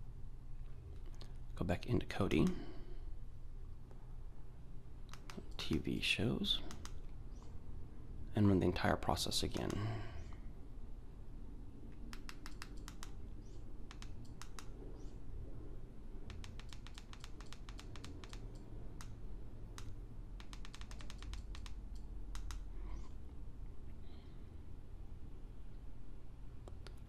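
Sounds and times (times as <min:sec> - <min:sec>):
remote control buttons clicking: 0:05.1 - 0:05.8, 0:06.6 - 0:07.5, 0:11.9 - 0:15.1, 0:16.2 - 0:22.7.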